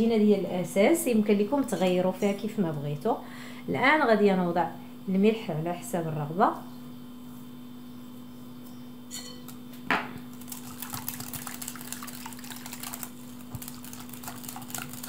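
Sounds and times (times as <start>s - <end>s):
whisk clicking on glass bowl: 10.5s - 15.0s.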